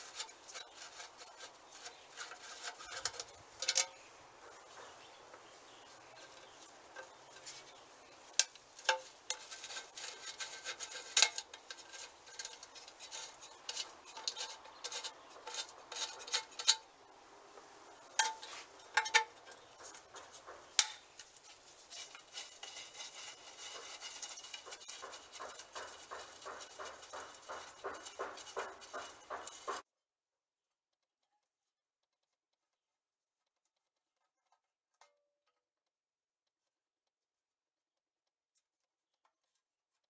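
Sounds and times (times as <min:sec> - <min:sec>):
fast faint ticking: 0:18.0 - 0:29.8.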